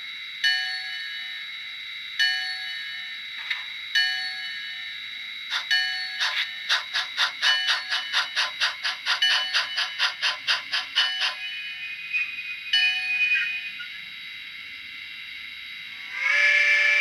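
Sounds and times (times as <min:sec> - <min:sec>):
steam locomotive chuffing: 0:05.5 - 0:12.2
locomotive bell ringing: 0:05.5 - 0:13.9.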